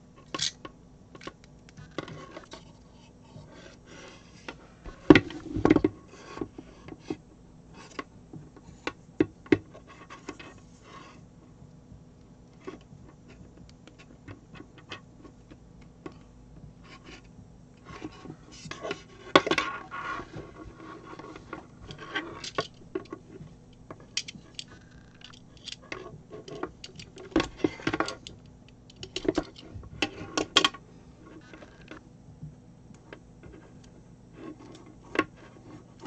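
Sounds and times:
cable connector clicks and rustling: 21.9s - 30.8s.

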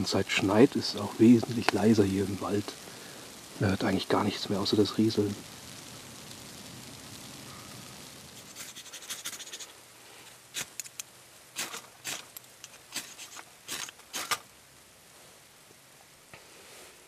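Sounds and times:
fire starter scraping strikes: 8.4s - 14.5s
dry tinder rustling: 11.6s - 14.5s.

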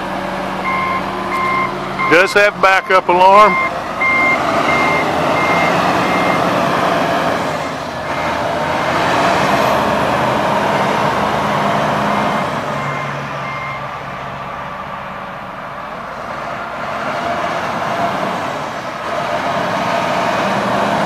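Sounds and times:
diesel engine running: 0.0s - 21.0s
backup alarm beeping: 0.6s - 6.5s, 12.2s - 13.9s.

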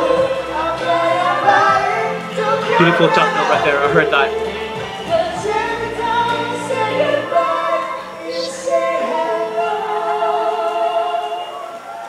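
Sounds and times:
male and female vocal duet: 0.0s - 12.0s
musical accompaniment: 0.0s - 12.0s.

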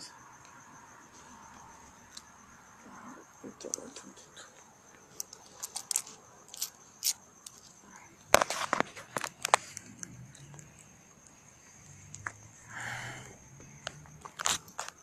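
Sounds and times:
crickets trilling: 0.0s - 15.0s
crunching and crackling: 3.6s - 11.4s, 13.8s - 15.0s.

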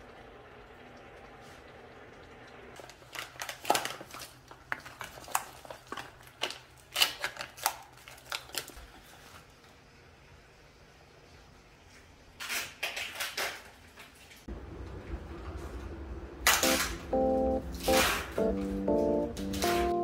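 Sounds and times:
plastic trays clicking and crinkling: 2.9s - 9.0s.

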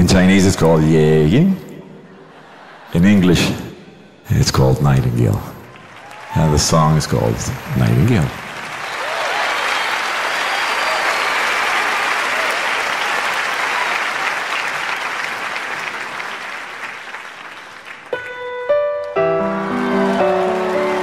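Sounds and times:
audience applauding: 5.0s - 18.2s, 19.4s - 21.0s.

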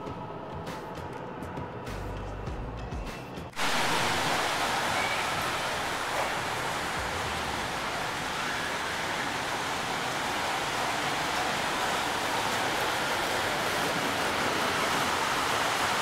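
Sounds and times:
model trains running: 3.6s - 16.0s.

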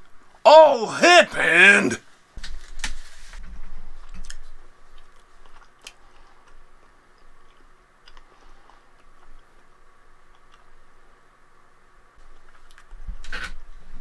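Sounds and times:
small clicks and rustles: 12.2s - 13.7s.

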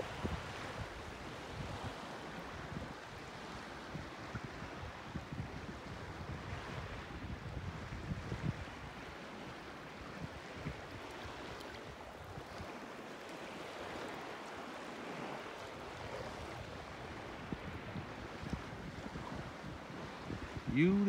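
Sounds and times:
wind buffeting microphone: 0.0s - 12.8s, 15.0s - 21.0s
small waves washing on shore: 0.0s - 21.0s.

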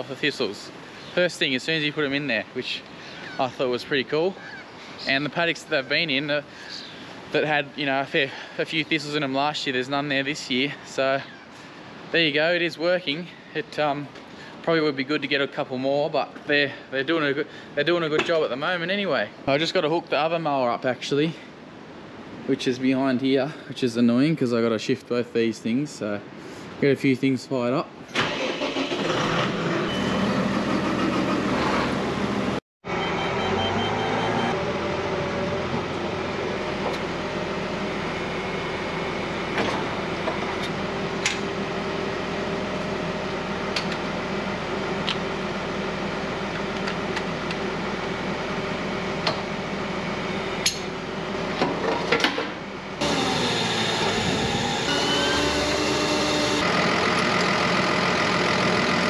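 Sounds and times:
tractor engine idling: 56.6s - 59.0s.

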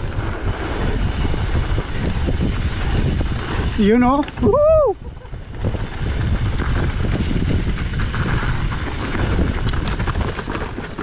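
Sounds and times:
bike tyres crunching on gravel: 0.0s - 11.0s
wind buffeting microphone: 0.0s - 11.0s
bike knocks and rattles: 5.5s - 11.0s.

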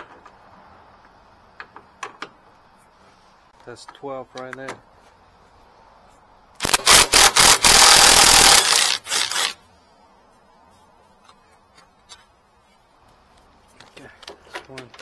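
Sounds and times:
power tool on a bolt: 6.6s - 9.6s.

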